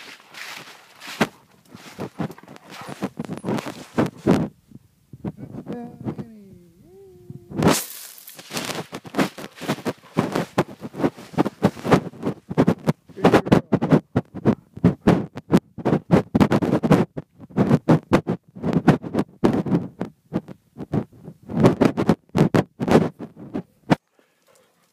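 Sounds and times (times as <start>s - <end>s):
dog panting: 24.1s - 24.9s.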